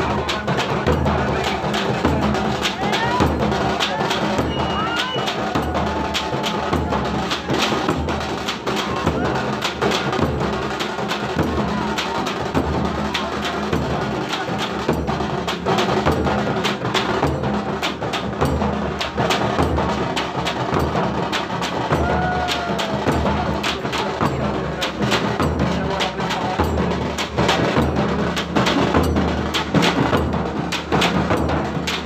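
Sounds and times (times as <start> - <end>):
deep drum beats: 0.0 - 32.0.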